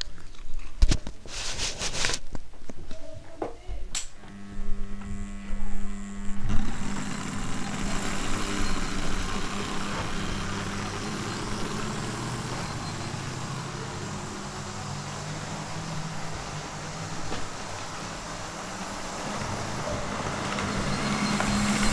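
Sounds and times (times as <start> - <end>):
low hum: 4.2 - 21.9
small electric motors whirring: 4.2 - 21.9
wheels rumbling on rail: 6.7 - 21.9.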